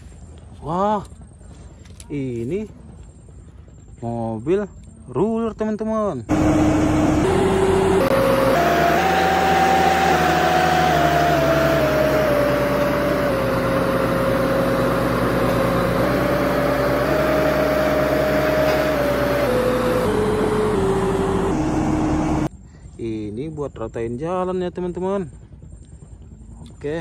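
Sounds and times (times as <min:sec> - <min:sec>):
road roller engine running: 0:06.3 - 0:22.5.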